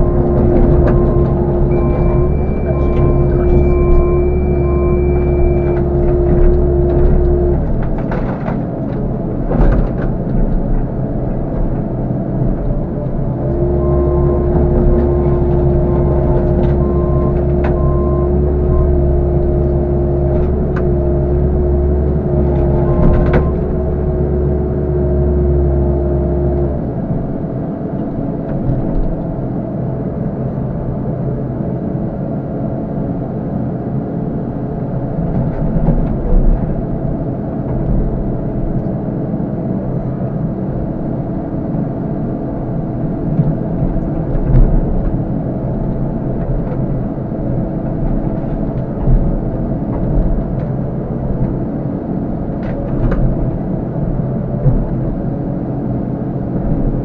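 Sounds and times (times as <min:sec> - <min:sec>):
excavator diesel engine: 0:00.0 - 0:57.0.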